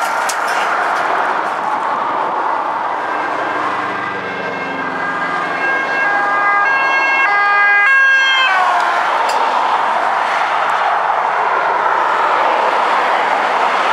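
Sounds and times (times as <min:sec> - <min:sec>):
motorway traffic noise: 0:00.0 - 0:13.9
two-tone police siren: 0:02.5 - 0:09.3.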